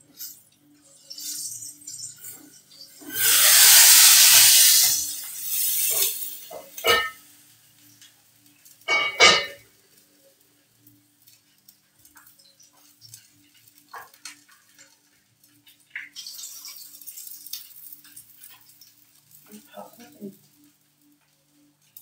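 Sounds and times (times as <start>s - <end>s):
metal pots and utensils clanking: 1.1s - 7.3s, 8.8s - 9.7s.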